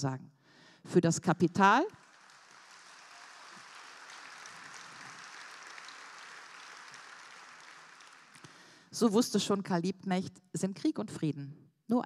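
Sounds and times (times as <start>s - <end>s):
audience applauding: 1.7s - 8.8s.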